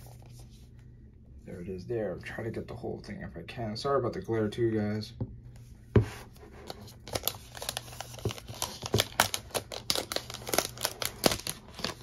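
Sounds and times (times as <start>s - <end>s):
plastic wrap crinkling: 6.6s - 12.0s.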